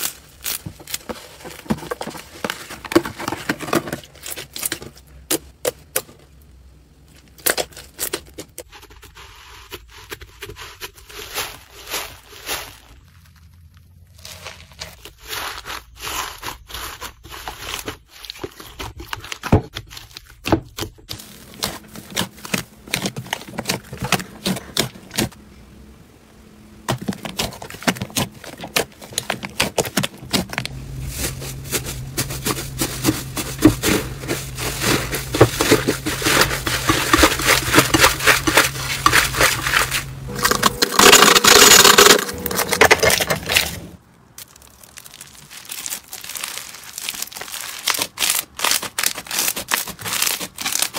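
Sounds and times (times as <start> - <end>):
low steady hum: 21.0 - 46.7
hands squeezing slime: 44.3 - 50.9.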